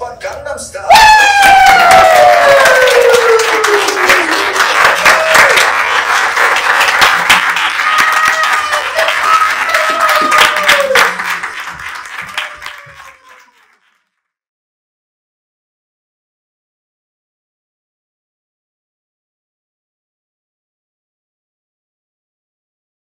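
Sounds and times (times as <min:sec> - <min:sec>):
whoops and cheers: 0:00.9 - 0:05.8, 0:07.7 - 0:11.4, 0:12.1 - 0:13.7
audience applauding: 0:00.9 - 0:14.1.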